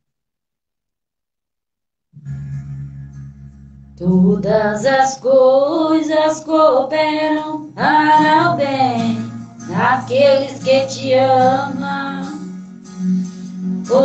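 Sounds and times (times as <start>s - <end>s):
woman singing into microphone: 4.0s - 12.6s.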